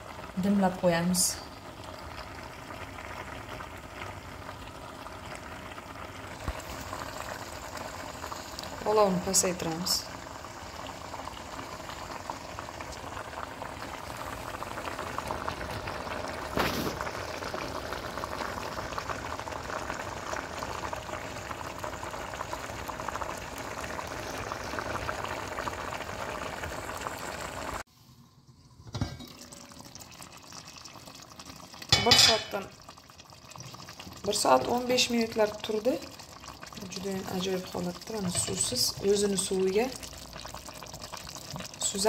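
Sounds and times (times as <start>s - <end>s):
stew bubbling and sizzling: 0.0s - 42.0s
pot clatter: 28.8s - 29.7s, 31.8s - 32.7s.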